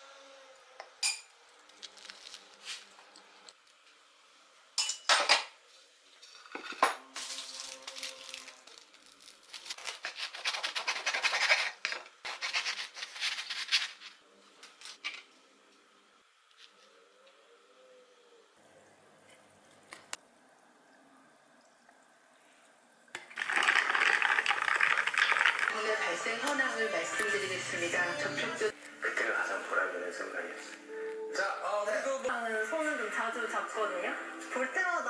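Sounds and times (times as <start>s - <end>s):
cutlery and plate clinking: 4.8s - 5.6s
paper bag rustling: 7.2s - 14.2s
knife sawing crusty bread: 9.6s - 13.6s.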